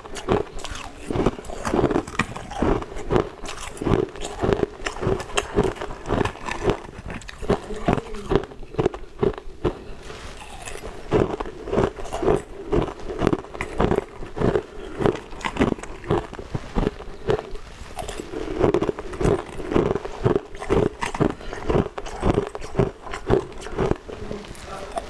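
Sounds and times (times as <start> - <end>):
ice cubes being chewed: 0.0 - 25.0.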